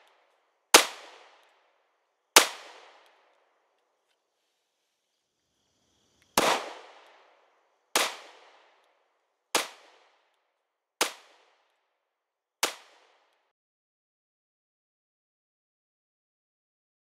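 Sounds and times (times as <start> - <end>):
echoing gunshots: 0.8 - 1.4, 2.4 - 3.1, 6.4 - 8.8, 9.6 - 10.2.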